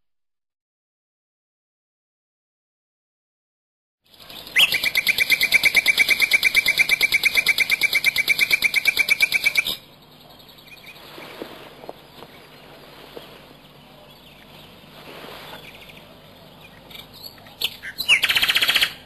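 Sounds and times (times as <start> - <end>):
rapid trill of bird chirps: 4.1 - 19.0.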